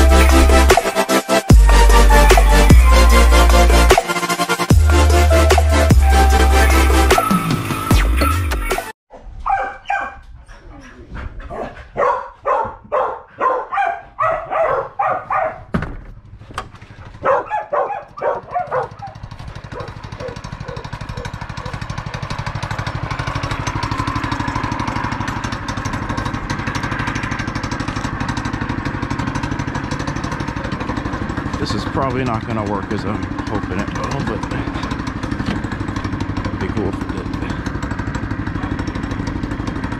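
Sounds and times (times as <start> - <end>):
go-kart engine running: 0.0 - 8.0, 12.0 - 39.9
dog barking: 9.1 - 10.3, 11.4 - 15.7, 17.2 - 21.8.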